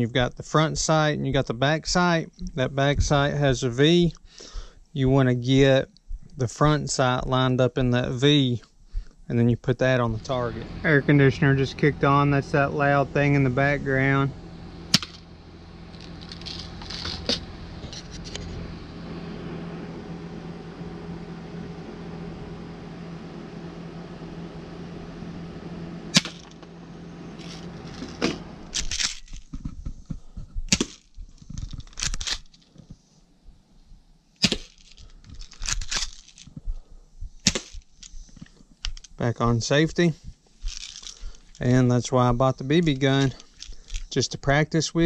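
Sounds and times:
air conditioner humming: 0:00.0 - 0:45.0
air pistol shots snapping: 0:14.9 - 0:15.2, 0:26.1 - 0:26.6, 0:30.7 - 0:31.0, 0:34.4 - 0:34.8, 0:37.4 - 0:37.9.

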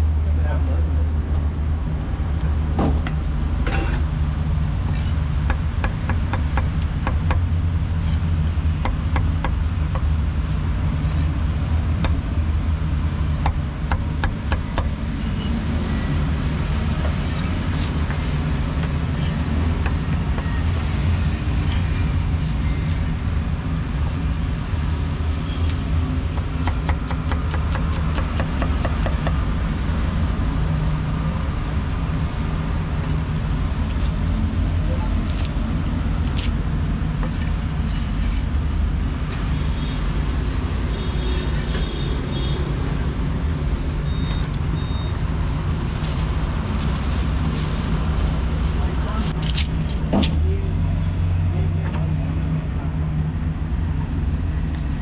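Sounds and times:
low rumble of street traffic: 0:00.0 - 0:55.0
cleaver chopping on wooden block: 0:26.4 - 0:29.4.

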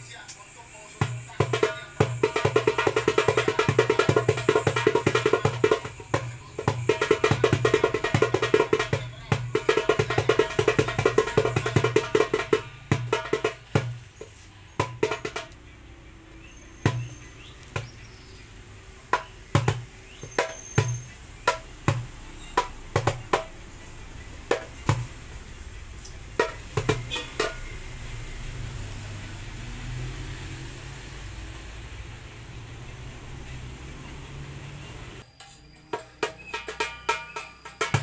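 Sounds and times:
darbuka played by hand: 0:01.0 - 0:15.6, 0:16.9 - 0:18.0, 0:19.1 - 0:25.4, 0:26.2 - 0:28.0, 0:35.9 - 0:38.0.

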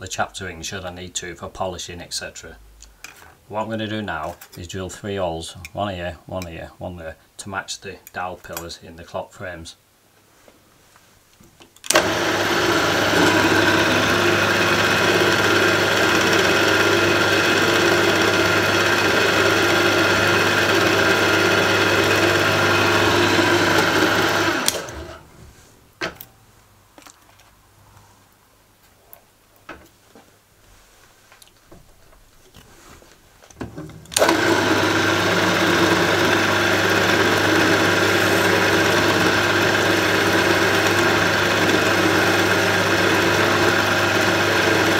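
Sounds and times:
milling machine motor running: 0:11.9 - 0:25.2, 0:34.1 - 0:44.9.

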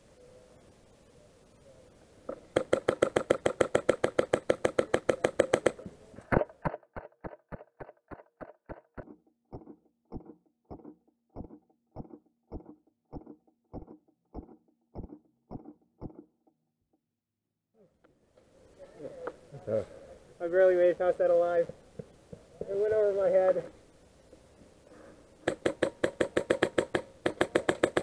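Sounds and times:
airsoft gun firing: 0:02.3 - 0:05.8, 0:25.4 - 0:28.0.

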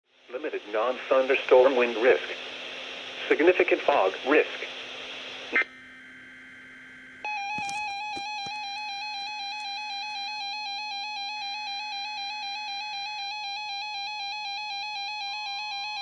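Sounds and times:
faint steady alarm tone: 0:05.7 - 0:16.0.

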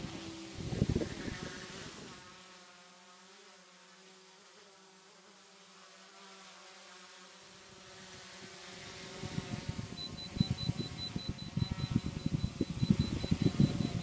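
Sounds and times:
drone propellers buzzing: 0:00.0 - 0:02.6, 0:07.5 - 0:14.0.

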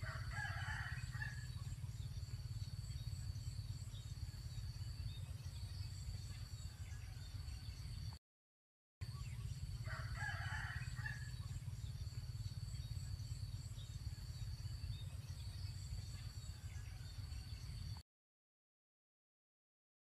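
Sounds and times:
rooster crowing: 0:00.0 - 0:01.5, 0:09.8 - 0:11.4.

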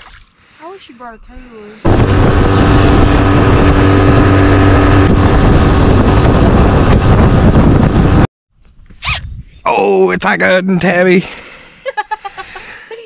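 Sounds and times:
outboard motor running: 0:01.8 - 0:08.2
water rushing along hull: 0:01.9 - 0:06.7.

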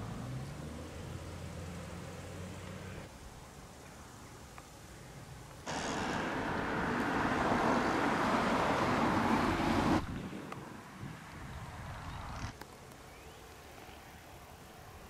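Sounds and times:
car tyres rushing on road: 0:05.7 - 0:12.0.

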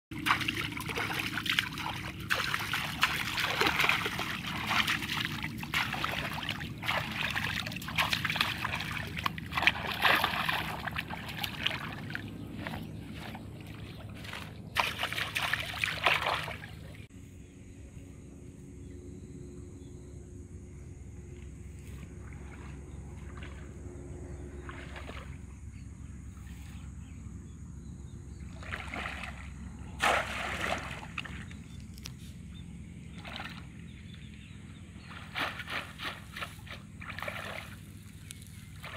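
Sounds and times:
pond water splashing: 0:00.1 - 0:17.1, 0:21.9 - 0:26.8, 0:28.3 - 0:38.9
outdoor background noise: 0:00.1 - 0:38.9.

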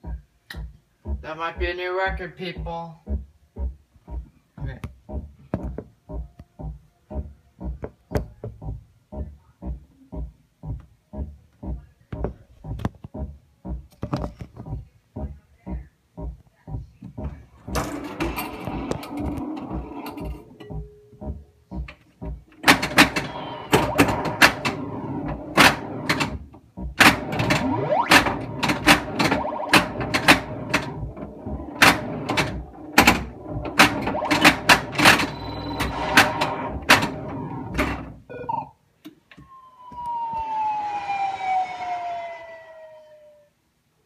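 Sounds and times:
pinball ball and flippers clacking: 0:17.2 - 0:38.7
electronic sound effects: 0:27.1 - 0:37.7, 0:39.4 - 0:43.5
long falling electronic tone: 0:39.4 - 0:43.5.

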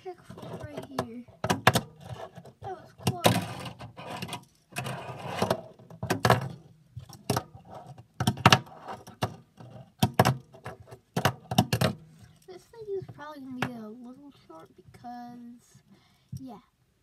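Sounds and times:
fingerboard rolling scrape: 0:02.0 - 0:02.7, 0:03.3 - 0:06.6, 0:07.4 - 0:09.9.

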